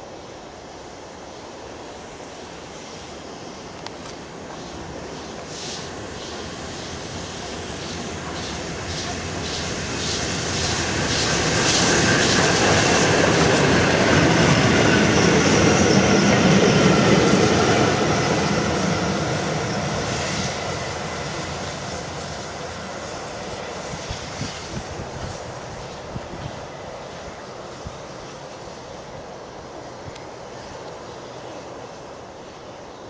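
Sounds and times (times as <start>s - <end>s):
wheels rushing on rail: 0.0s - 33.0s
steam locomotive rhythmic beat: 6.7s - 13.5s.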